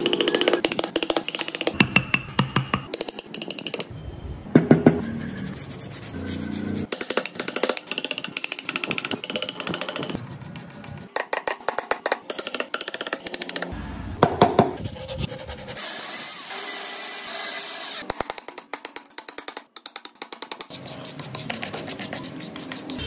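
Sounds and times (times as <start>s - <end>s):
hammer tapping wood chisel: 0.0s - 3.9s, 6.9s - 10.2s, 11.1s - 14.7s.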